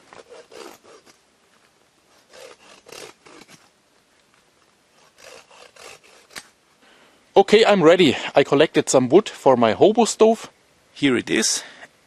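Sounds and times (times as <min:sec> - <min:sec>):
hand saw cutting wood: 0:00.0 - 0:01.2, 0:02.1 - 0:03.6, 0:05.0 - 0:06.5.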